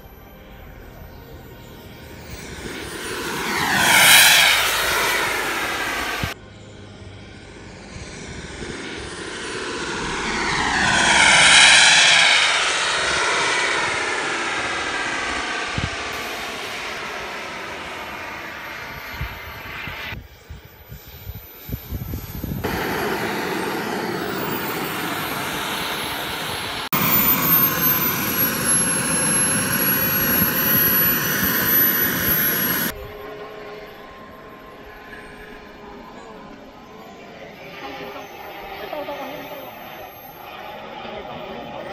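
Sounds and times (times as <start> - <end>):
high thin whine: 0.0 - 41.9
model jet turbine whining rush: 2.2 - 6.6, 7.2 - 33.4.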